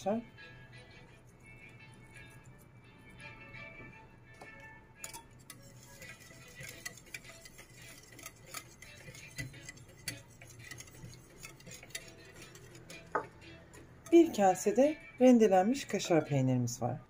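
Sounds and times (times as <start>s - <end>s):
whisk ticking against bowl: 5.0s - 16.6s.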